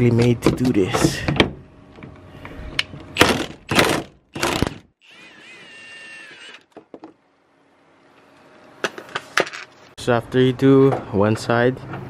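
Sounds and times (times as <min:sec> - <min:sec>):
impact wrench bursts: 0:03.2 - 0:06.7.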